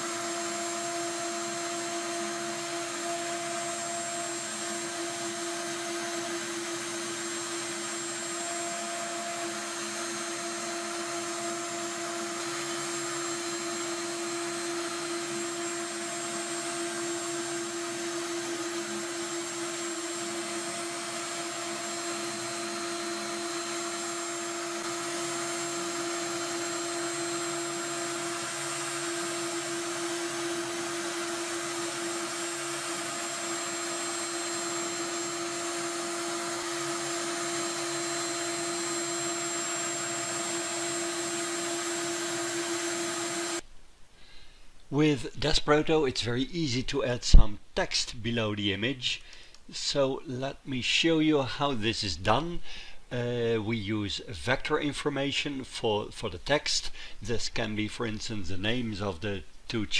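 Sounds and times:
router spindle whine: 0.0s - 43.6s.

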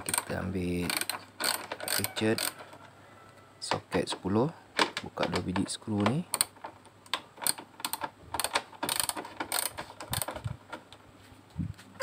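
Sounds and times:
hand ratchet clicking: 0.0s - 2.6s, 5.3s - 10.6s.

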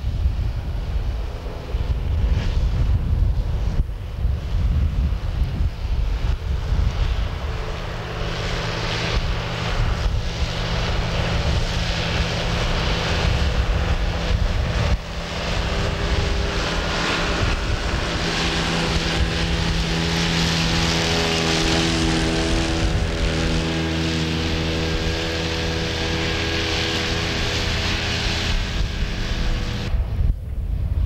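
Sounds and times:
mower rushing whirr: 0.0s - 30.4s
wind rumbling on microphone: 0.0s - 31.0s
tractor engine running: 6.2s - 30.3s.

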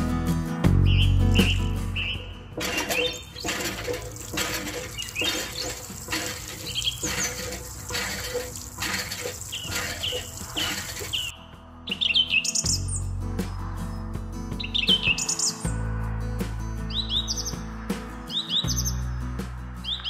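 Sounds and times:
bird chirps: 0.9s - 2.3s, 6.6s - 7.4s, 11.9s - 13.0s, 16.9s - 17.6s
water splashing into metal bucket: 2.6s - 11.3s.

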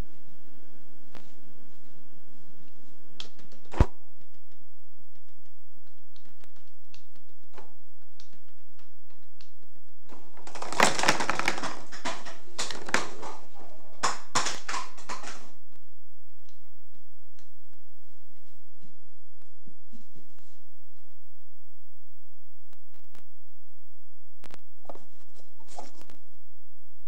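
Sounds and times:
plastic cups clattering: 10.1s - 15.6s.

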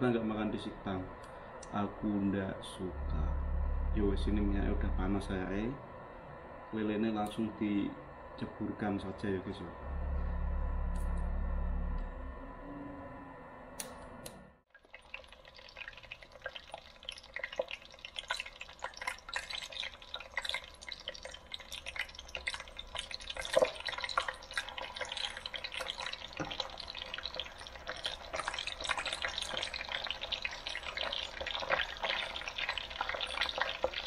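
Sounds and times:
fish deep-frying in oil: 14.7s - 34.0s
oil popping: 14.7s - 34.0s.

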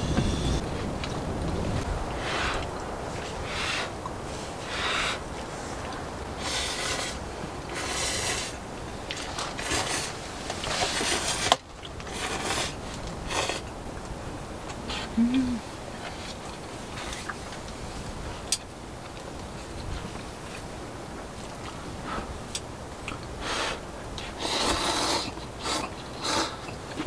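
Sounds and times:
noodles being slurped: 24.2s - 26.8s.

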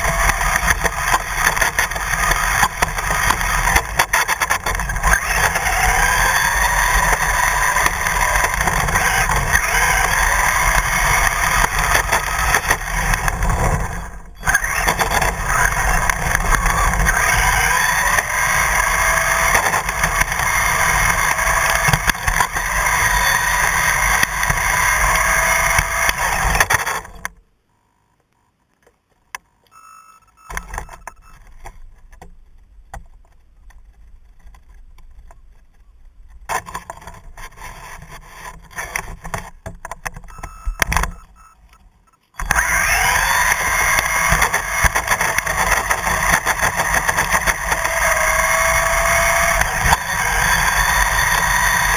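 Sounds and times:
rc car motor whine: 0.0s - 27.4s, 42.4s - 51.9s
road and wind noise: 0.0s - 27.4s, 30.5s - 51.9s.

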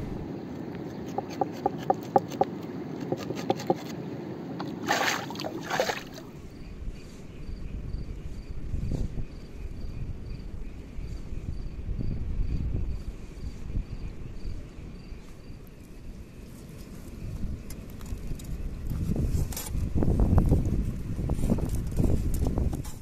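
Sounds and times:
river water running: 1.2s - 6.5s
insect chirping: 4.5s - 19.0s.

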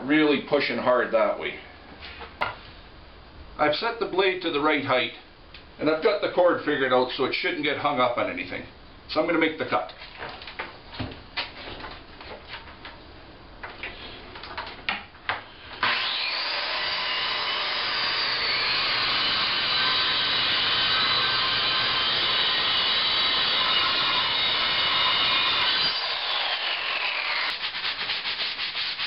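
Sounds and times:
circular saw cutting wood: 15.8s - 29.0s.

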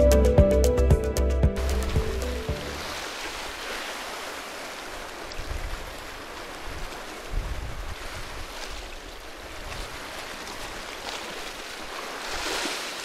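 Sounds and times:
waves washing against rocks: 1.6s - 13.0s
wind gusting on microphone: 6.6s - 8.8s.

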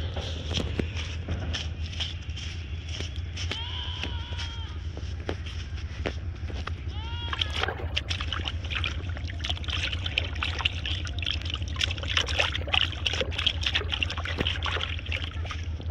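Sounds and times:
fish splashing in tub: 7.3s - 15.9s.

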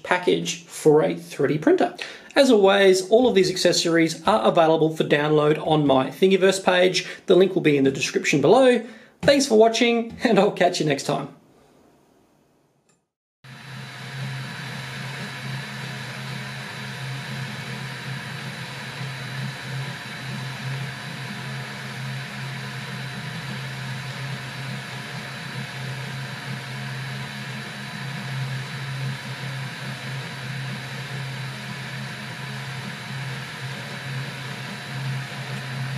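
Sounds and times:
cooling fan whirring: 13.5s - 35.9s
stepper motors humming: 13.5s - 35.9s.

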